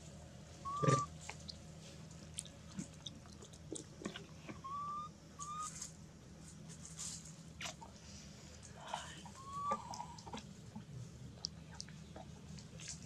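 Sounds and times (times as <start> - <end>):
short whistle-like calls: 0.6 - 1.1, 4.6 - 5.8
dry leaves rustling: 5.6 - 7.5.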